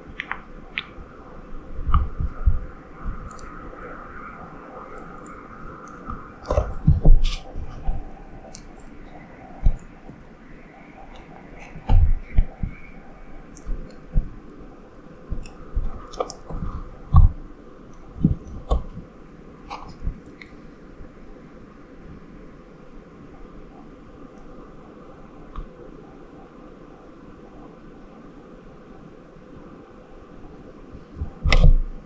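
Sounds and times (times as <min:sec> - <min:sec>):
frog thumps and clicks: 0:05.0 - 0:08.9, 0:15.3 - 0:17.4, 0:18.2 - 0:19.0, 0:31.2 - 0:32.0.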